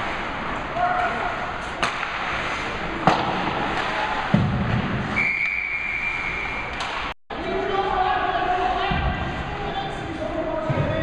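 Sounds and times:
puck thud against boards: 3.0 - 4.8.

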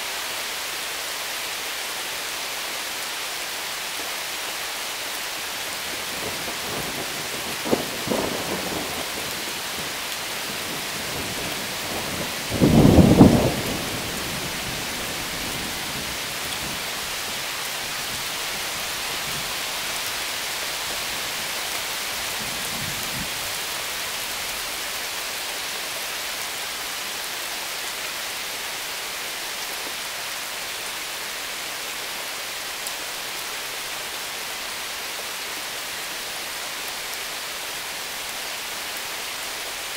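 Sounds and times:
heavy rain hissing: 0.0 - 39.9
thunder rumble: 10.6 - 16.9.

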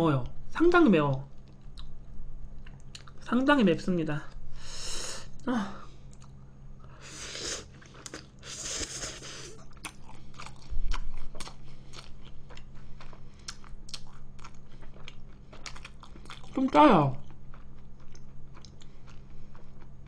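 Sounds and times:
low electrical hum: 0.0 - 20.0
slurping noodles: 7.0 - 9.6
wet chewing: 7.5 - 20.0.

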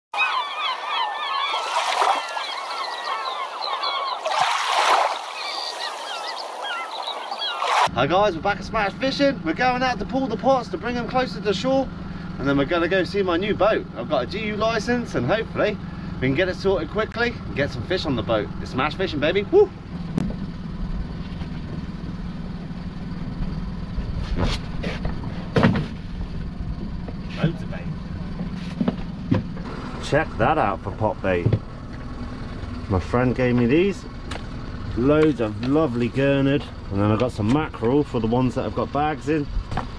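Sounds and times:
birds chirping: 0.1 - 23.9
rushing splashing noise: 4.2 - 7.9
boat engine idling: 5.4 - 39.9.

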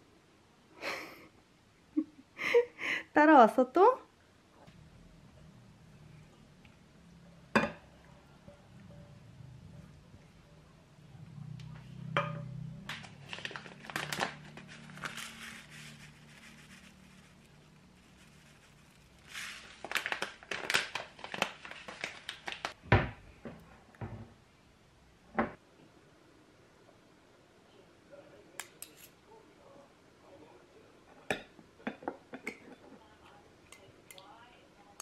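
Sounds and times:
low hum: 4.6 - 13.6
packaging crinkling: 12.9 - 22.8.

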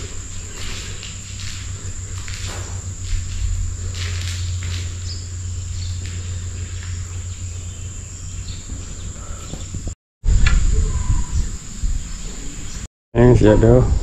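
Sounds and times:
low rumble: 0.0 - 13.3.

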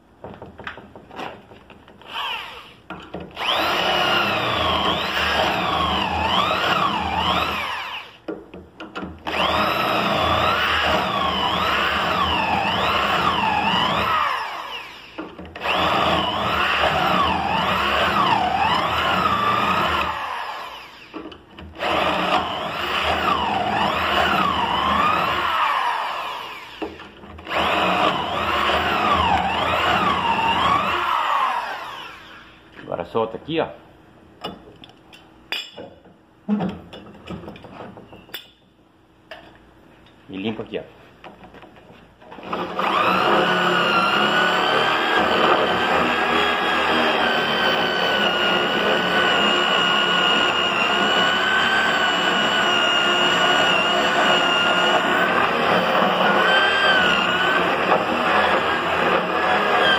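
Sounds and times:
electric drill boring holes: 2.0 - 8.3, 9.2 - 32.6, 42.3 - 59.9.

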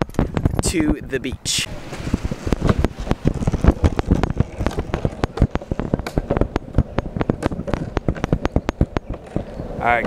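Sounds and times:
skateboard wheels clacking on pavement: 2.0 - 10.0.

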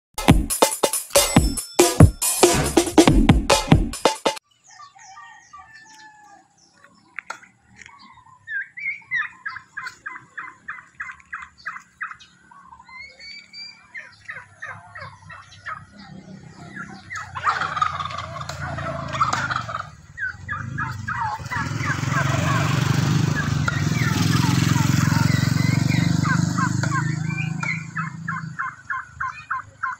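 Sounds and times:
turkeys calling: 4.6 - 29.9
motorcycle engine approaching: 9.3 - 29.6.

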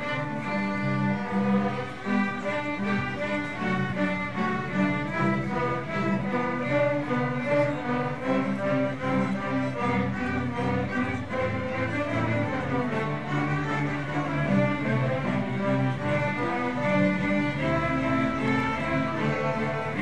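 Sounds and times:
string orchestra playing: 0.0 - 20.0.

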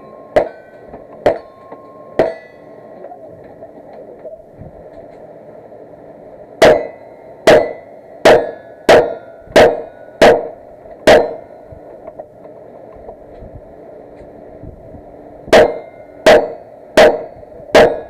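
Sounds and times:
loud gunshots with echo: 6.6 - 11.5, 15.5 - 18.0.

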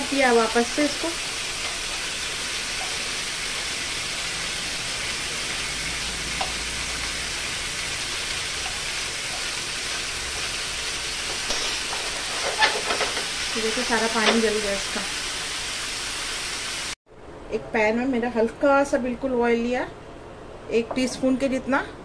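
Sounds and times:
chicken sizzling in hot oil: 0.0 - 17.0.

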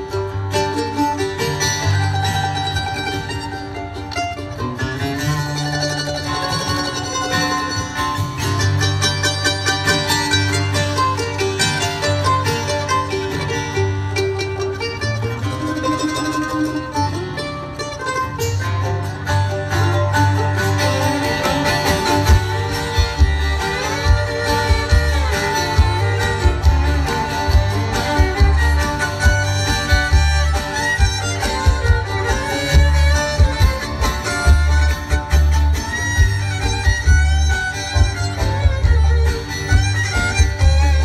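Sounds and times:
bluegrass band playing: 0.0 - 41.0
fiddle melody: 0.0 - 41.0
upright bass beat: 20.8 - 41.0.

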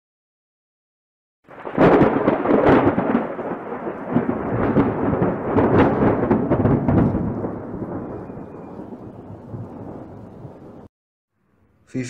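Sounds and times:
thunder cracks: 1.5 - 10.9
thunder rolling: 1.5 - 10.9.

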